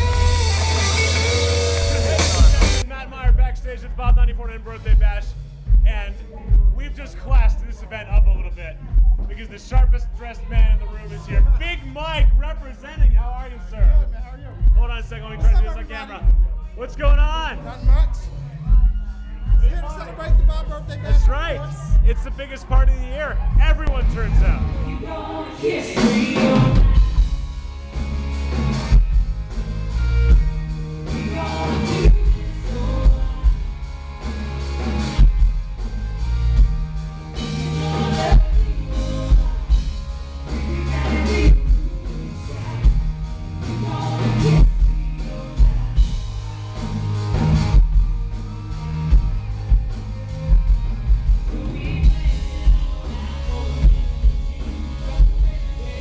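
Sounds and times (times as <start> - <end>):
country band playing: 0.0 - 56.0
drum kit beat: 0.0 - 56.0
woman singing: 24.8 - 27.4, 31.0 - 34.4, 37.4 - 47.0, 51.4 - 56.0.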